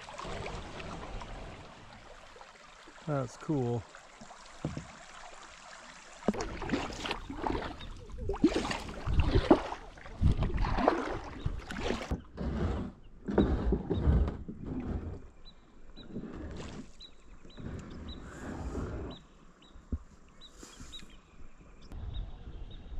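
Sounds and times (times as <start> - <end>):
water splashes and drips: 0.0 - 12.2
kayak paddle strokes in water: 0.0 - 19.2.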